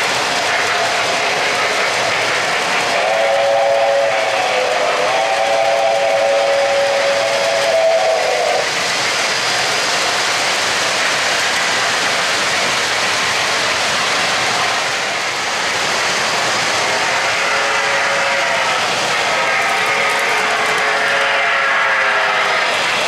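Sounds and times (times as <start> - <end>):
model trains rolling on track: 0.0 - 23.0
model train chime whistle: 3.0 - 8.6, 20.2 - 22.6.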